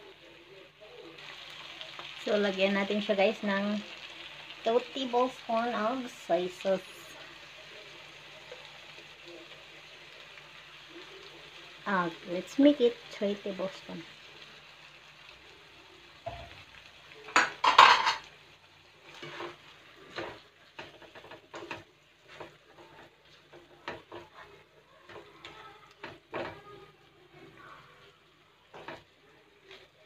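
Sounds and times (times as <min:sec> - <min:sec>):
food frying in a pan: 0:00.0 - 0:30.0
spatula scraping a pan: 0:17.3 - 0:18.3, 0:18.9 - 0:27.8.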